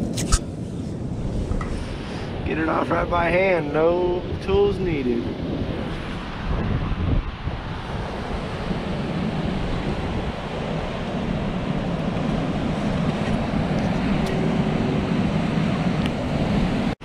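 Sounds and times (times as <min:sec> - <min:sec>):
wind rumbling on microphone: 0:00.0 - 0:17.0
ocean surf breaking on rocks: 0:01.2 - 0:17.0.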